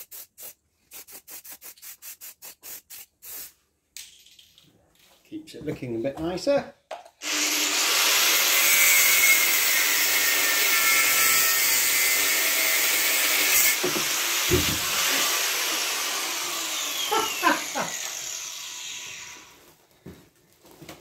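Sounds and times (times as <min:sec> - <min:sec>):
angle grinder cutting metal: 0:07.2 - 0:19.6.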